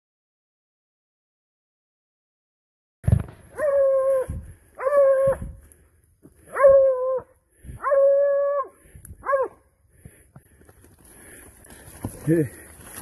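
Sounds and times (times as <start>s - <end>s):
hunting dog baying: 3.5s - 5.4s, 6.4s - 9.6s.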